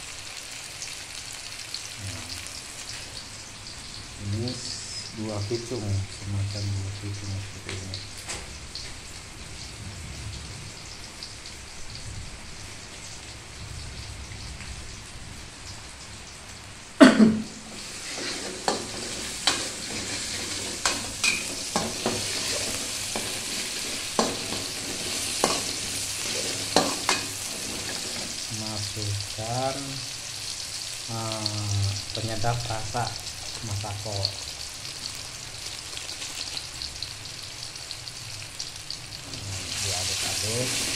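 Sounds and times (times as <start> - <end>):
food sizzling in a wok: 0.0 - 40.9
metal spatula scraping a pan: 17.7 - 29.0.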